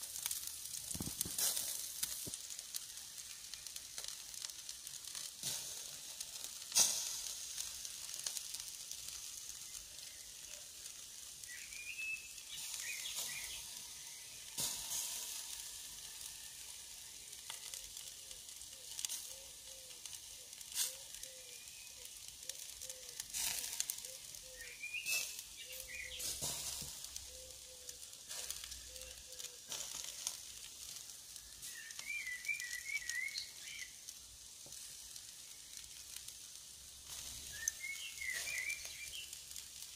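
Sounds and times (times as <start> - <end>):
meat sizzling over charcoal: 0.0 - 39.9
sharp pops: 0.2 - 2.8.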